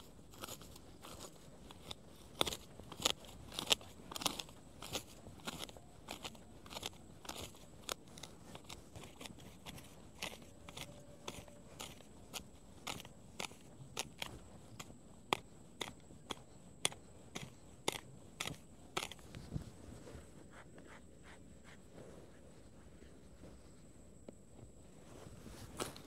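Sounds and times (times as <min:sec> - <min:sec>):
plant stems snapping: 0:00.4 - 0:09.3.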